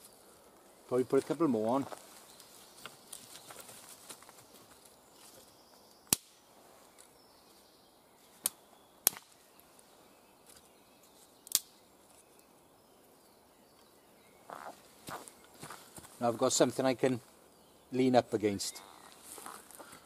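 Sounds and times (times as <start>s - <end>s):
wooden sticks cracking: 2.4s - 6.4s, 8.3s - 9.8s, 10.4s - 12.5s.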